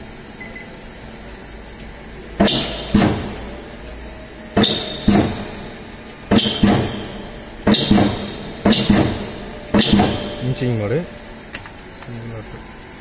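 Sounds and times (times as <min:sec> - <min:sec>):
low machine hum: 0:00.0 - 0:13.0
stamping press metallic clanks: 0:02.4 - 0:03.8, 0:04.5 - 0:10.7.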